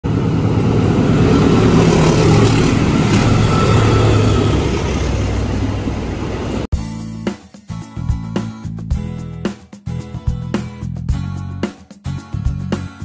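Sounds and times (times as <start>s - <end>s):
train wheels rumbling on rails: 0.0s - 6.7s.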